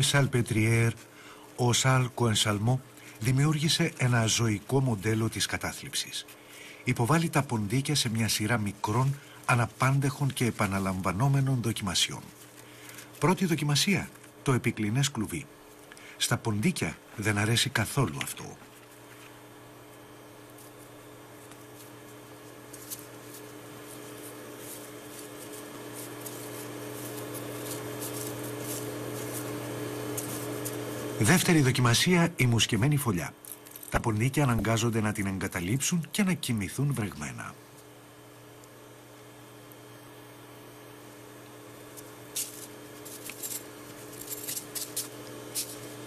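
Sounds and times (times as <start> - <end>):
low hum of held tones: 0.0 - 46.0
faint clicks and scratches: 18.7 - 31.2.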